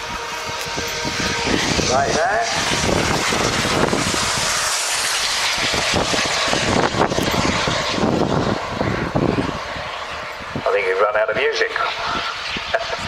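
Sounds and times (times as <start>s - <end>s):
model aircraft engine drone: 0.0s - 13.0s.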